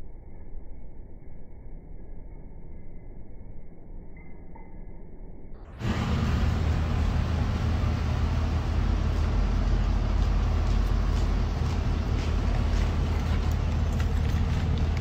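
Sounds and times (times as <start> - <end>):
heavy low rumble: 5.6 - 15.0.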